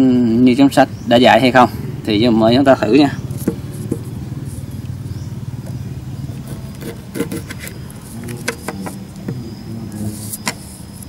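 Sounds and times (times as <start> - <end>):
knife cutting through lime: 6.4 - 9.4.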